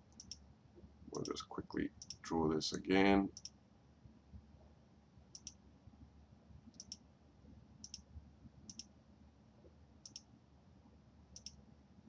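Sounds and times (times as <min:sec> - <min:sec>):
computer mouse clicks: 0:00.1 - 0:00.4, 0:02.0 - 0:02.2, 0:03.3 - 0:03.6, 0:05.3 - 0:05.6, 0:06.7 - 0:07.0, 0:07.8 - 0:08.1, 0:08.7 - 0:08.9, 0:10.0 - 0:10.3, 0:11.4 - 0:11.6.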